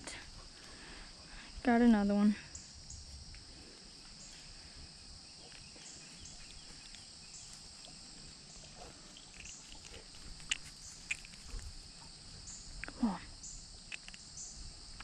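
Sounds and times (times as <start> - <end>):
insect chirps: 0.0 - 15.0
insects buzzing: 0.0 - 15.0
sharp clicks: 13.9 - 14.3.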